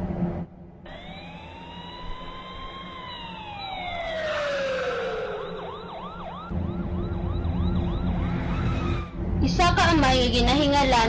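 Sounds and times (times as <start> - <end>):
fast yelping siren: 0.9 - 9.2
wailing siren: 0.9 - 9.5.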